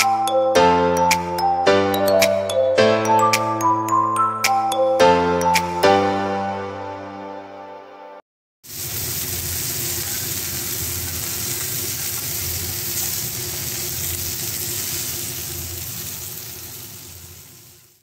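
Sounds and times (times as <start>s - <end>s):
chicken sizzling in a pan: 8.6s - 18.0s.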